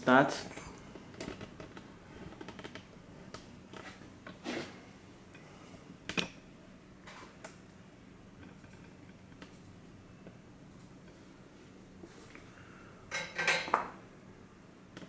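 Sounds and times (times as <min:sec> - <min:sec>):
faint clicks and taps: 0:08.4 - 0:11.2.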